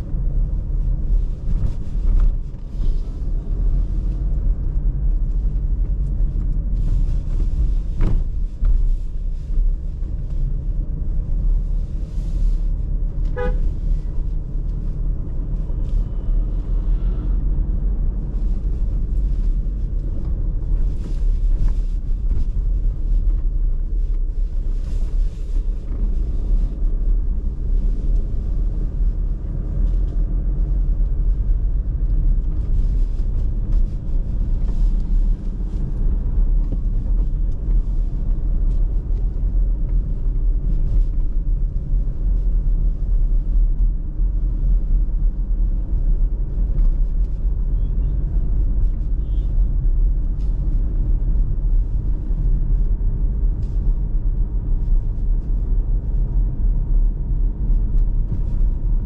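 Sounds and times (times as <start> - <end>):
car road and engine rumble: 0.0 - 59.0.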